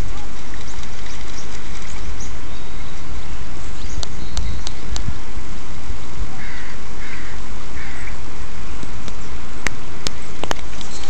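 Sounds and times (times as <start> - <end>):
wind rumble on microphone: 0.0 - 11.0
gull calls: 6.3 - 8.2.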